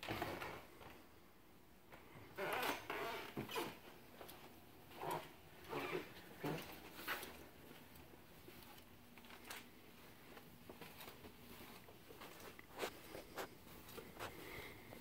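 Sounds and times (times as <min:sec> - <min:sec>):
soft footsteps on carpet: 0:06.2 - 0:15.0.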